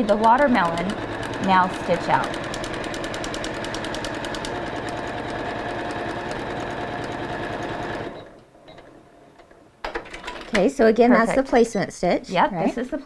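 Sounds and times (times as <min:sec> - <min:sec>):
embroidery machine stitching: 0:00.0 - 0:09.0.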